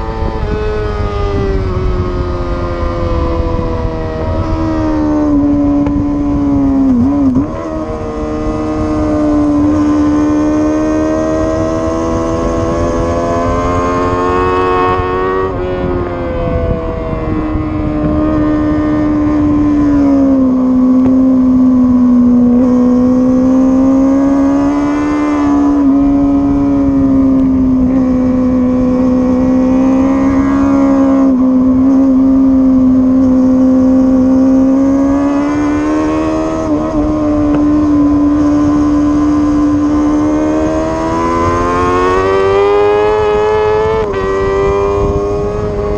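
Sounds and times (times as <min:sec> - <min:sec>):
low wind rumble: 0:00.0 - 0:45.9
motorcycle engine at high revs: 0:00.0 - 0:45.9.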